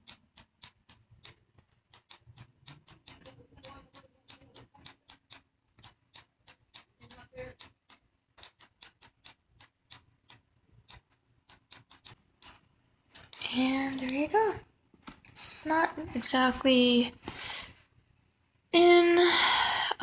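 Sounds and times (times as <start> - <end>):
computer mouse clicking: 0.0 - 14.3.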